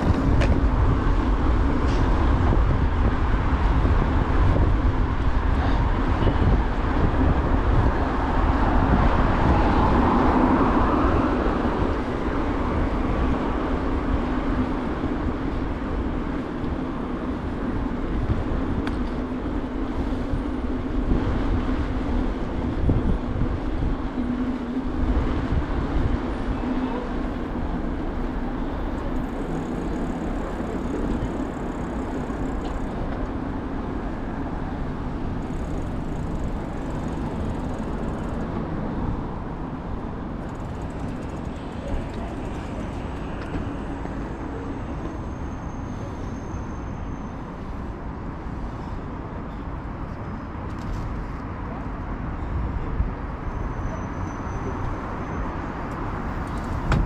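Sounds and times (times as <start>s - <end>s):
wind buffeting microphone: 0.0s - 45.0s, 55.0s - 57.0s
city traffic: 0.0s - 57.0s
tyres humming on asphalt: 0.0s - 57.0s.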